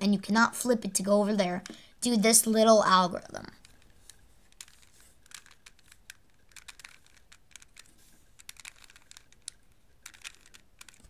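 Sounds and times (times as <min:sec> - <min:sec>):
puzzle cube plastic clicks: 0:03.5 - 0:11.0.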